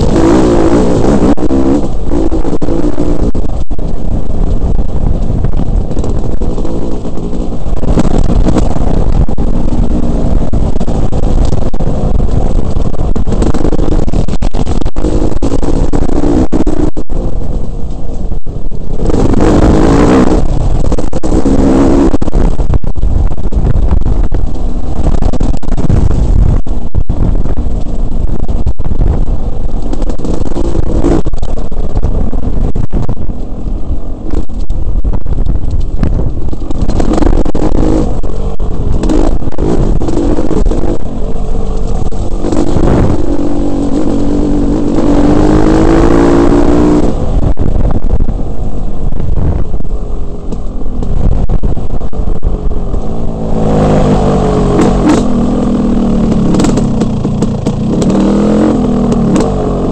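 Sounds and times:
dirt bike engine revving: 0.0s - 17.5s, 18.6s - 22.8s, 36.0s - 48.2s, 52.3s - 59.9s.

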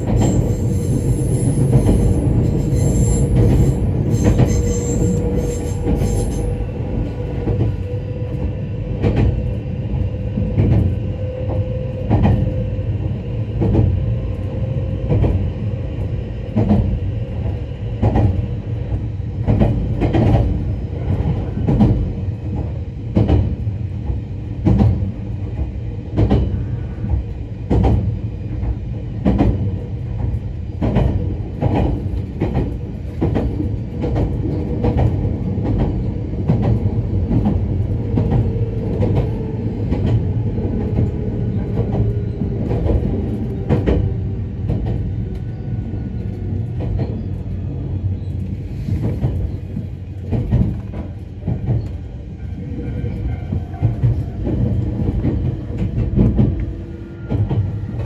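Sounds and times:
train low rumble: 0.0s - 58.0s
train wheels clacking over rail joints: 48.8s - 58.0s.

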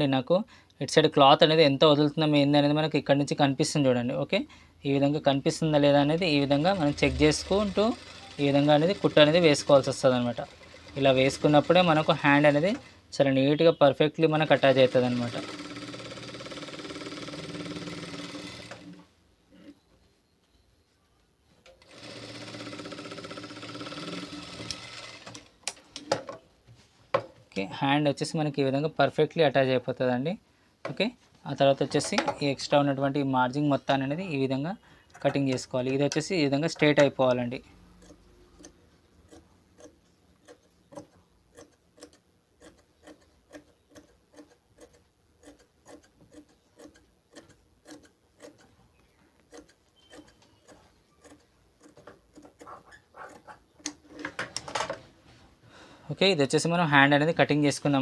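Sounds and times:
sewing machine running: 6.3s - 12.9s, 14.4s - 19.0s, 21.8s - 25.5s.

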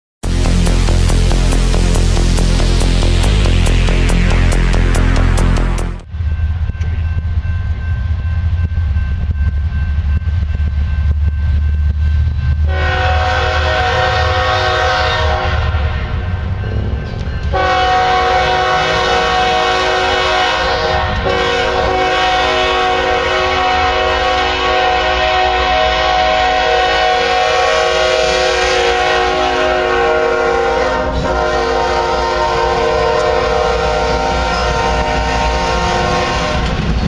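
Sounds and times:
multi-note train air horn: 0.2s - 6.0s, 12.7s - 16.3s, 17.5s - 36.8s
diesel locomotive rumble: 0.2s - 37.0s.

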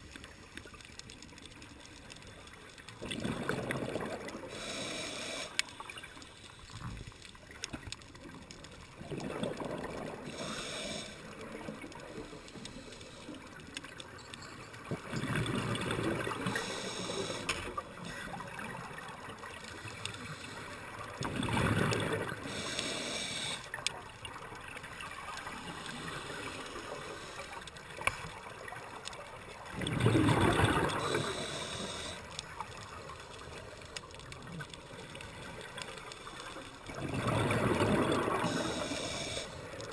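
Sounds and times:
low underwater hiss: 0.0s - 39.9s
exhaled bubbles underwater: 2.9s - 4.9s, 8.2s - 12.4s, 14.8s - 39.9s.

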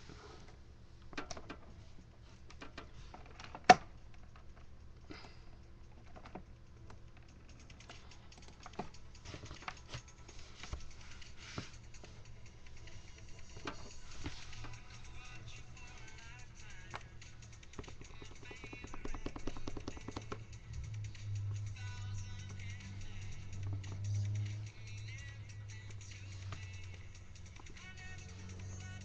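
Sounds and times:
fingers tapping controller pads: 5.9s - 29.0s.

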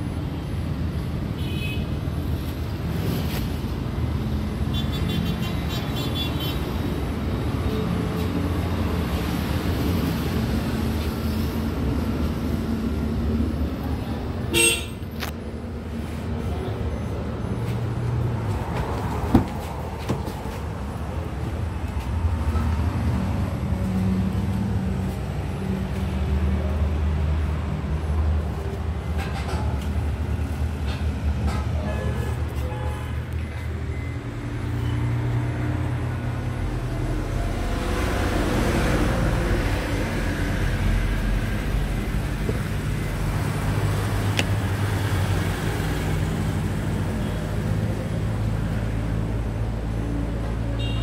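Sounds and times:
road traffic rumble: 0.0s - 51.0s
car horn toot: 14.5s - 15.0s, 50.8s - 51.0s.

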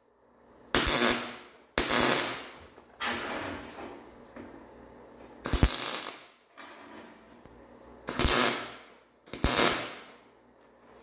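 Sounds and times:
welder arc crackling: 0.7s - 2.6s, 5.4s - 6.4s, 8.1s - 10.2s.

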